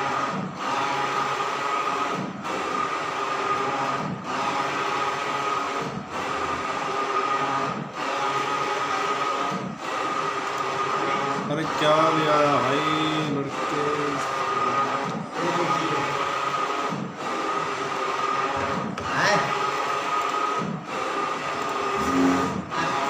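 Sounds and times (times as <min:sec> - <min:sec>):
printer carriage whirring: 0:00.0 - 0:23.0.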